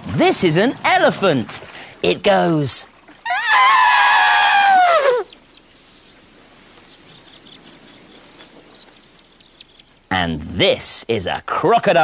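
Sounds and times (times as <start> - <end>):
elephant trumpeting: 3.2 - 5.3.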